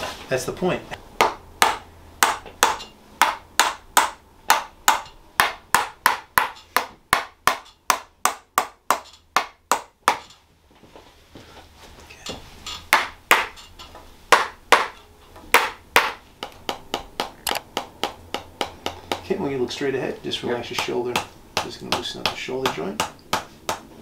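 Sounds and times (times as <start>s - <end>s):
mallet tapping wooden stick: 12.9s - 19.3s.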